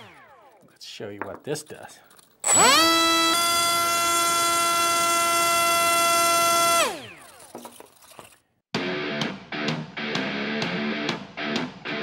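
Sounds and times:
electric propeller high whine: 0:00.0 - 0:00.7.

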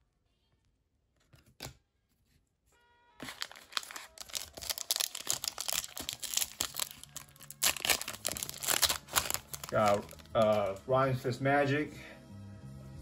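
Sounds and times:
foil wrapper tearing and crinkling: 0:03.2 - 0:10.8.

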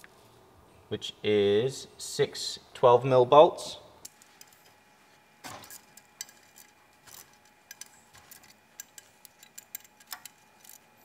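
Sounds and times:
ratchet clicking: 0:07.7 - 0:10.8.

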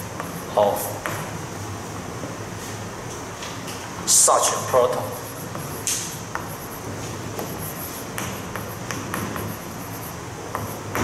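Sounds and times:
room hum: 0:00.0 - 0:11.0
chalk tapping: 0:00.2 - 0:00.5, 0:04.9 - 0:11.0
chalk scratching on blackboard: 0:04.6 - 0:11.0.

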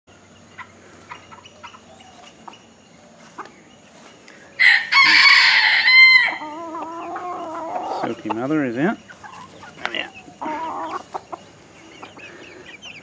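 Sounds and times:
chickens clucking: 0:00.1 - 0:13.0
rooster crowing: 0:04.6 - 0:08.1.

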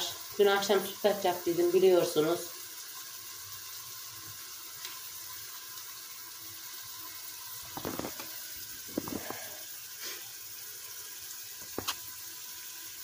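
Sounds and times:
steady kitchen hiss: 0:00.0 - 0:13.0
knocks and clatters: 0:07.7 - 0:08.3.

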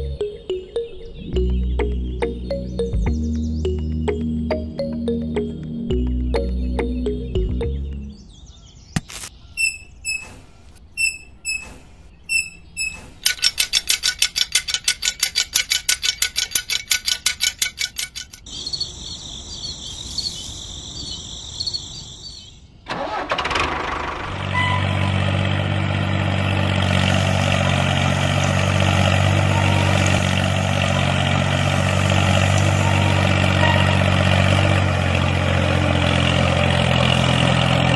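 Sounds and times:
diesel engine running: 0:00.0 - 0:08.2, 0:22.9 - 0:37.9
engine cranking: 0:09.6 - 0:18.5, 0:22.9 - 0:37.9.

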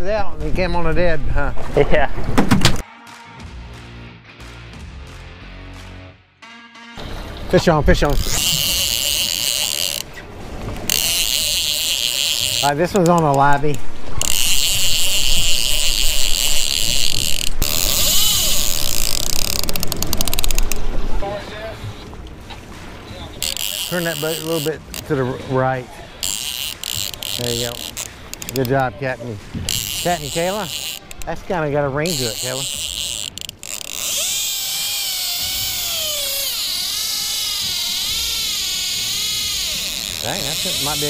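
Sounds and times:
fishing reel drag buzzing: 0:07.9 - 0:20.9, 0:23.4 - 0:25.4, 0:26.1 - 0:29.0, 0:29.6 - 0:41.0.

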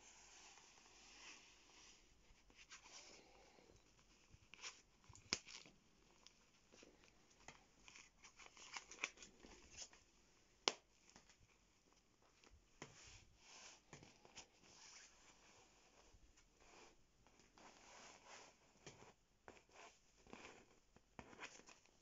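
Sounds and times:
jacket fabric crinkling: 0:03.8 - 0:10.1.

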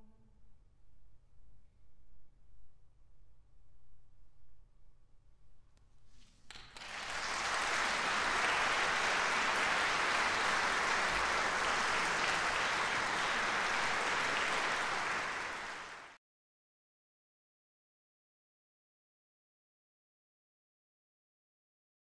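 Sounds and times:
audience applauding: 0:06.5 - 0:16.2.

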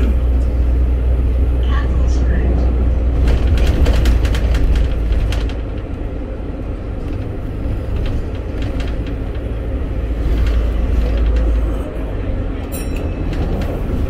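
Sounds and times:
bus engine and road rumble: 0:00.0 - 0:14.0
rattles and clicks: 0:03.1 - 0:14.0.

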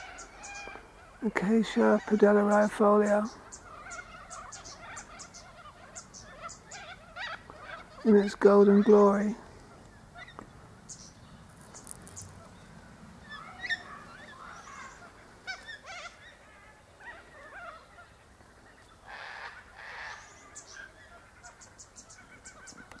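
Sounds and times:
birds chirping and whistling: 0:00.0 - 0:16.4
harsh bird calls: 0:00.0 - 0:23.0
high bird ticks: 0:09.8 - 0:12.4.

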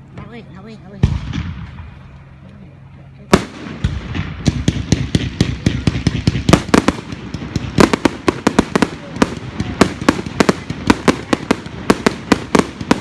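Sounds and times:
firework cracks and pops: 0:03.3 - 0:13.0.

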